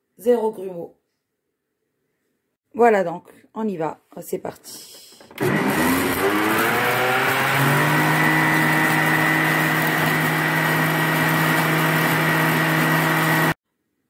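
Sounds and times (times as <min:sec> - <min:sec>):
blender motor running: 0:05.2 - 0:13.6.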